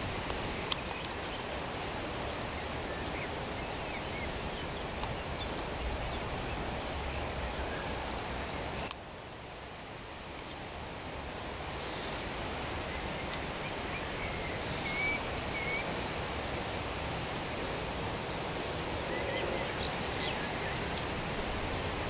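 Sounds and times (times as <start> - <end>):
faint bird chirps: 11.8 - 16.5.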